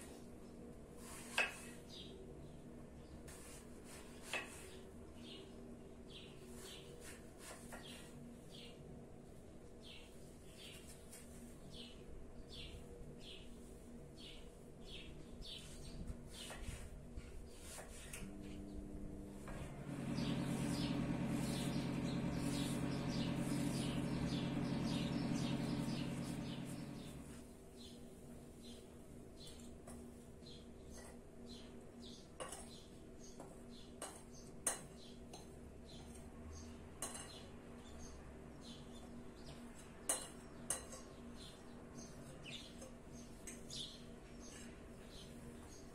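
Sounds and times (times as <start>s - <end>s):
low steady hum: 18.1s - 27.4s
small bird chirping: 20.1s - 28.0s.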